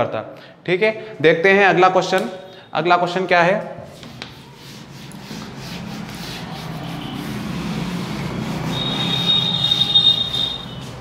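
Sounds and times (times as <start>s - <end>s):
duster rubbing on whiteboard: 3.8s - 11.0s
high steady squeak: 6.2s - 11.0s.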